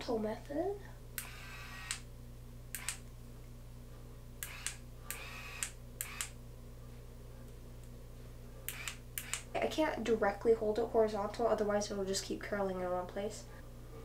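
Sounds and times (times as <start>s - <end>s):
faint low hum: 0.0s - 14.0s
curling iron clicks: 1.2s - 2.1s, 2.7s - 3.0s, 4.4s - 6.4s, 8.7s - 9.5s.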